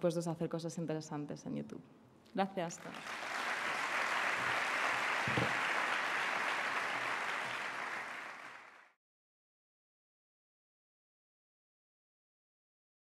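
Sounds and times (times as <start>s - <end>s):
audience applauding: 2.8s - 9.0s.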